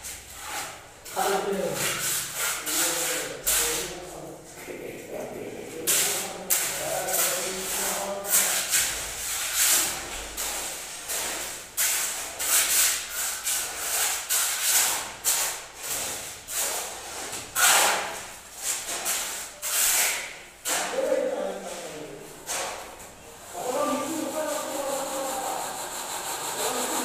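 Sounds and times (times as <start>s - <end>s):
trowel scraping wet concrete: 17.6s - 20.9s.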